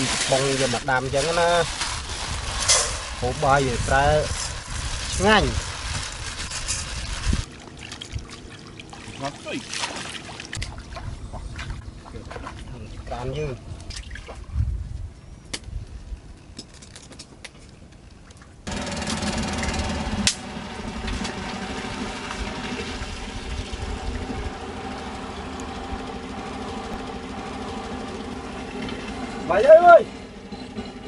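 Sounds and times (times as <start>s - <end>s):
boat engine running: 18.7s - 31.0s.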